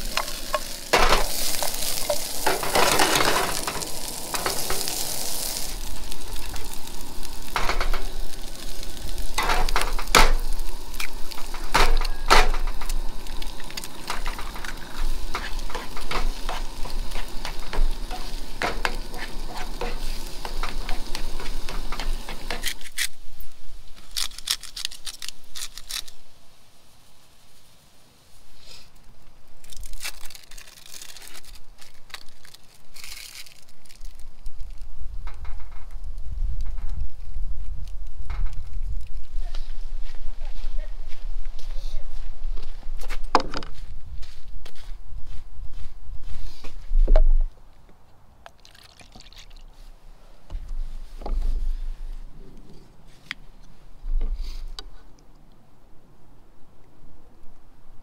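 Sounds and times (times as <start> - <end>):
vegetables and eggs sizzling in skillet: 0.0 - 26.0.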